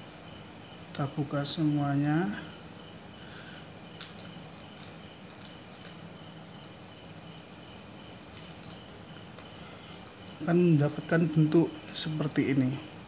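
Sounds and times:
crickets trilling: 0.0s - 13.0s
paper banknote crinkling: 3.9s - 6.1s, 8.2s - 9.5s.

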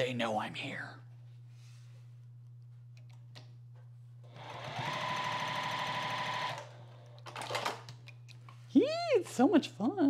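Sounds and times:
sewing machine stitching: 4.3s - 7.7s.

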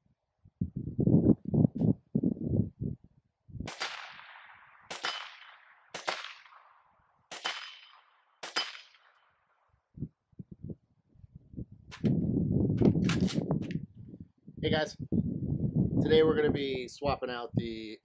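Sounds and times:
rifle shots with echo: 3.7s - 9.4s.

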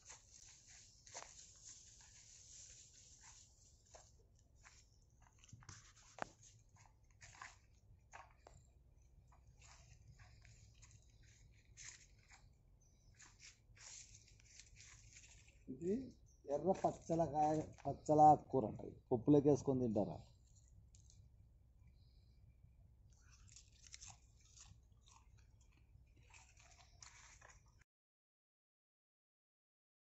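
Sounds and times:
leaves and twigs rustling: 0.0s - 18.2s, 23.2s - 27.8s.

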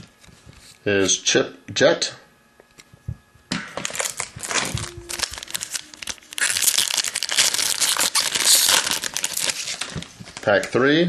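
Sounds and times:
foil wrapper crinkling and tearing: 3.8s - 10.8s.

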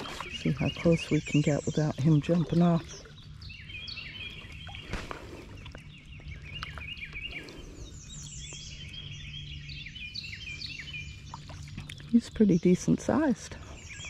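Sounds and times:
songbirds chirping and trilling: 0.0s - 14.0s.

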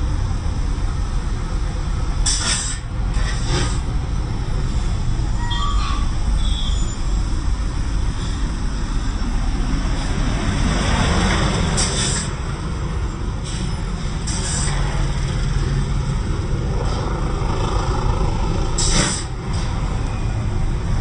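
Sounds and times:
diesel trucks rumbling past: 0.0s - 21.0s
air brake hisses: 2.2s - 3.8s, 11.8s - 12.4s, 13.4s - 14.8s, 18.8s - 19.3s.

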